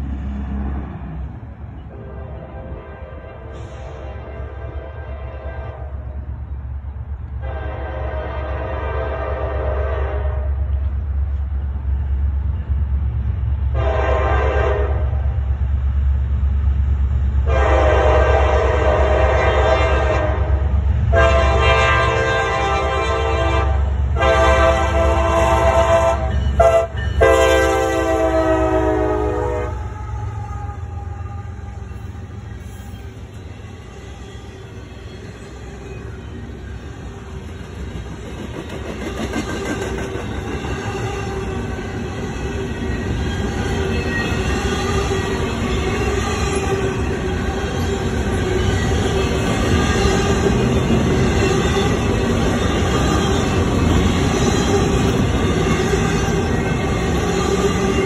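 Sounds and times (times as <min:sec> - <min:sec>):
freight cars rolling past: 0:00.0 - 0:02.7
locomotive rumble: 0:00.0 - 0:58.0
locomotive air horn blasts: 0:01.9 - 0:06.2, 0:07.4 - 0:10.7, 0:13.8 - 0:15.2, 0:17.4 - 0:32.0.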